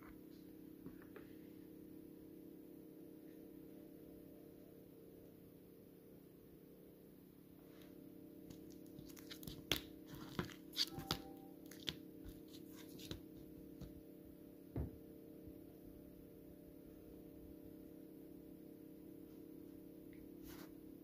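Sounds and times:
wrappers crinkling: 8.5s - 13.2s.

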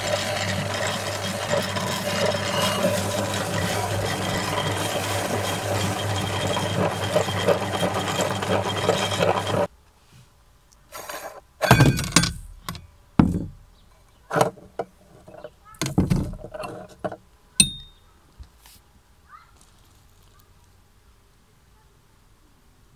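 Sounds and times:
meat grinder crunching cookies: 0.0s - 9.7s
metal clinks and thunks: 11.6s - 13.7s, 15.3s - 18.1s
crumbs rustling: 19.5s - 20.7s.

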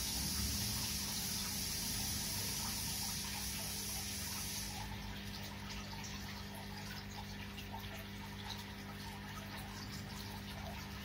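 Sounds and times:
high hiss: 0.0s - 4.8s
aquarium water bubbling: 0.0s - 11.0s.

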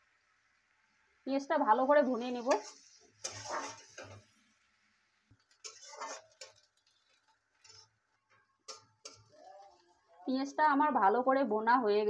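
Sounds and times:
spatula scraping metal pan: 2.2s - 4.3s, 5.5s - 8.0s, 8.7s - 9.8s.

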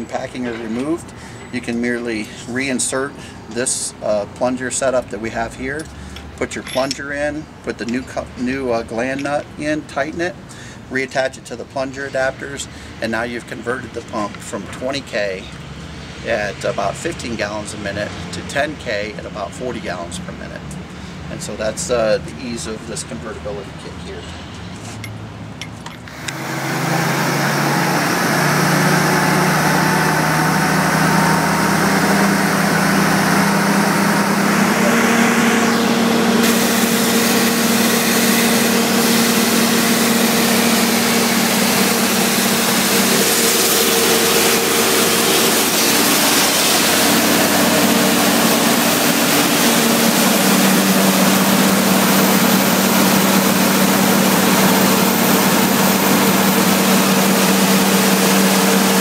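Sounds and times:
diesel engine and pump drone: 0.0s - 59.0s
high-pressure water jets hissing: 33.7s - 59.0s.

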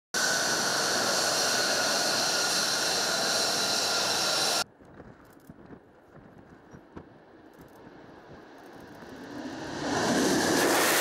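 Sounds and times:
jet engine whining roar: 0.1s - 4.6s, 8.4s - 11.0s
wind noise: 0.2s - 11.0s.

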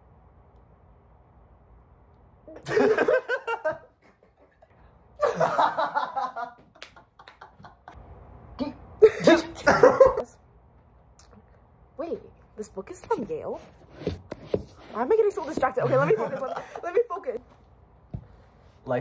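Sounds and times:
people laughing: 2.6s - 8.0s, 9.0s - 10.4s, 15.8s - 17.4s.

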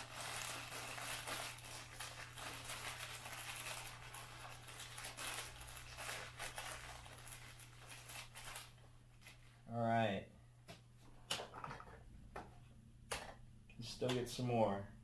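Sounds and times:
plastic bag crinkling: 0.0s - 9.5s.

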